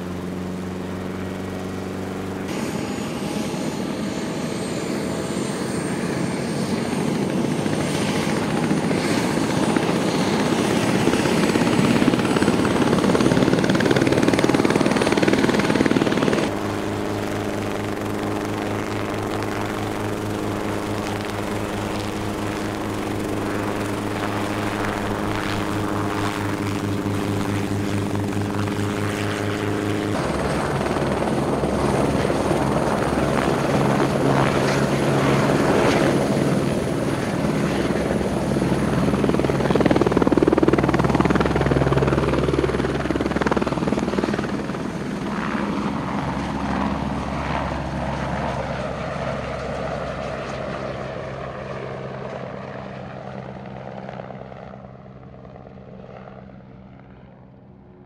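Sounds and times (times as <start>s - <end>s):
helicopter engine drone: 0.0s - 58.0s
helicopter rotor chop and turbine whine: 0.0s - 58.0s.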